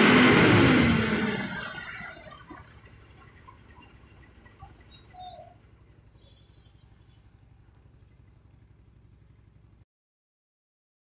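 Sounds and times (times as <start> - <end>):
truck engine idling: 0.0 - 9.8
faint bird chirps: 2.1 - 7.3
burst of hiss: 6.2 - 7.3.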